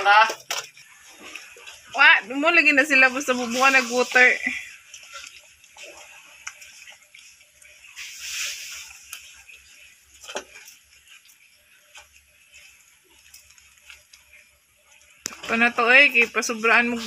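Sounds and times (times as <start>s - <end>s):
puppies lapping food from metal bowl: 0.0s - 17.0s.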